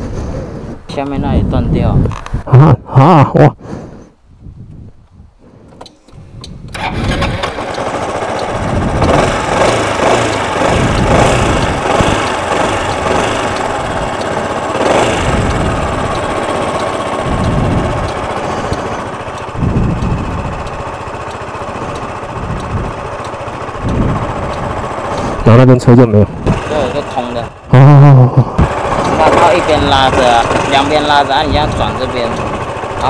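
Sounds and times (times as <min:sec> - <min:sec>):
motorcycle engine running: 0:06.7 - 0:33.0.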